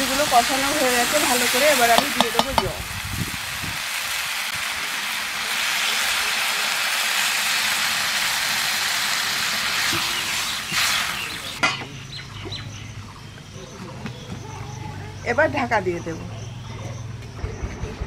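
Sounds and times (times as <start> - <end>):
hot pan sizzling: 0.0 - 12.2.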